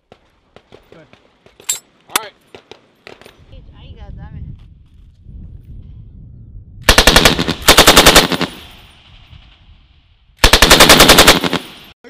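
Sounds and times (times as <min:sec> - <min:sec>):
machine gun bursts: 0:06.9 - 0:08.9, 0:10.4 - 0:11.9.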